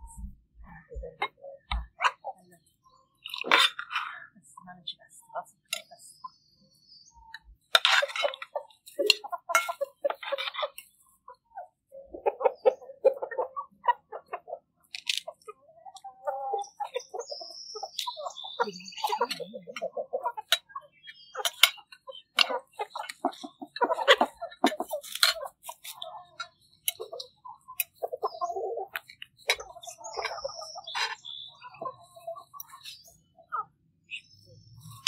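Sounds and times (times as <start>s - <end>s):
hens clucking: 0.0s - 35.0s
high bird chirps: 0.0s - 35.0s
cutlery clinking on plates: 7.8s - 10.8s, 21.4s - 26.0s.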